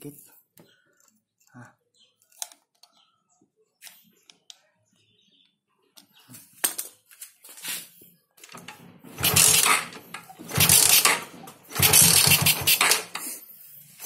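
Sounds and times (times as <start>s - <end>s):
motorcycle engine running loud: 9.2s - 12.8s.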